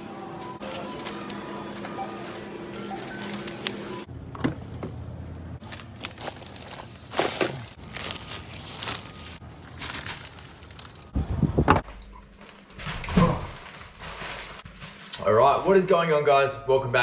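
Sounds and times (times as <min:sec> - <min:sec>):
plastic bags rustling: 0:00.3 - 0:04.1, 0:05.6 - 0:11.5, 0:12.4 - 0:15.7.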